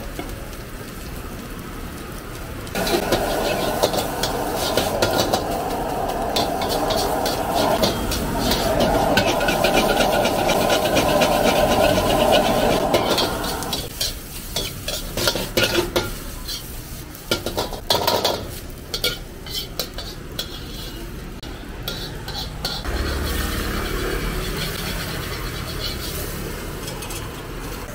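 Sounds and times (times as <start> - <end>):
food frying: 0.0 - 27.9
gas burner rushing: 2.7 - 14.1, 22.3 - 27.9
metal ladle scraping a wok: 2.8 - 16.8, 17.4 - 21.2, 21.8 - 27.9.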